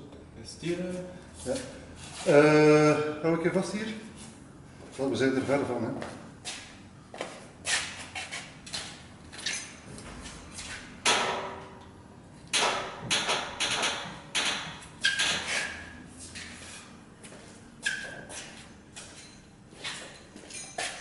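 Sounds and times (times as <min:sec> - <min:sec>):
metallic clanks and knocks: 0:12.5 - 0:15.8.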